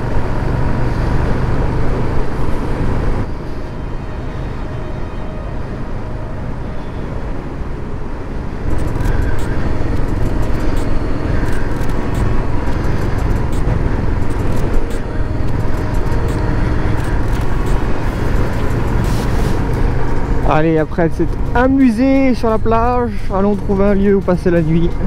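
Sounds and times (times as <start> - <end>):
wind noise: 0.0 - 23.8
road noise: 0.0 - 25.0
motorcycle engine running: 8.7 - 23.0.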